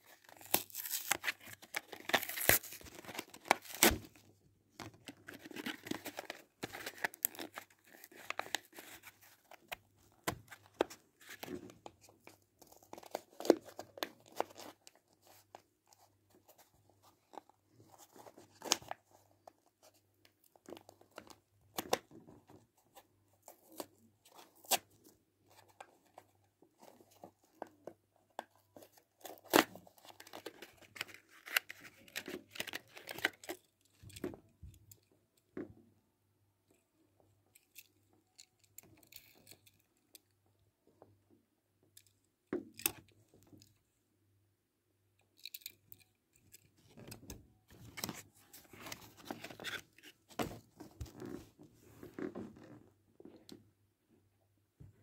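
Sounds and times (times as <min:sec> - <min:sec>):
packaging torn open: 0:00.2 - 0:04.1.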